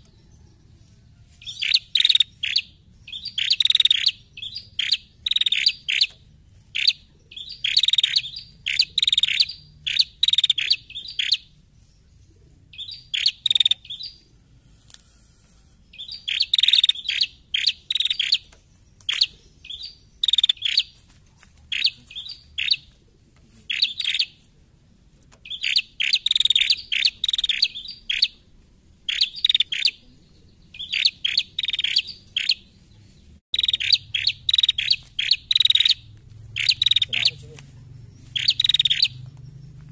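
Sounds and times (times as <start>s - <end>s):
bird calling in high chirps: 1.4s - 11.5s, 12.7s - 14.3s, 15.9s - 21.0s, 21.7s - 22.9s, 23.7s - 24.4s, 25.4s - 28.4s, 29.1s - 32.7s, 33.6s - 39.8s.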